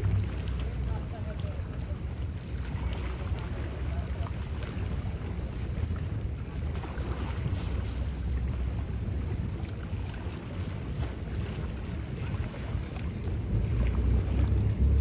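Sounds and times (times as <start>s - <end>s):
low rumble: 0.0s - 15.0s
wind buffeting microphone: 0.0s - 15.0s.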